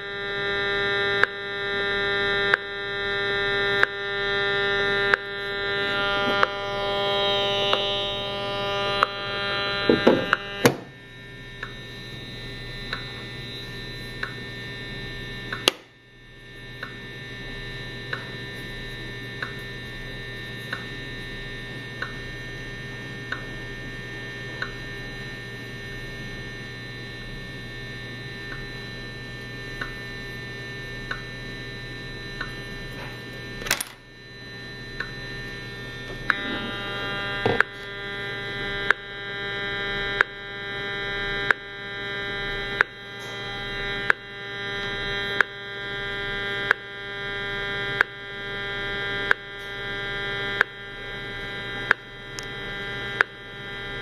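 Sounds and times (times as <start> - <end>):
steady electrical buzz: 0.0 - 54.0
sharp meter clicks: 14.2 - 14.4, 31.0 - 31.4, 32.4 - 32.6, 35.0 - 35.2, 38.6 - 54.0.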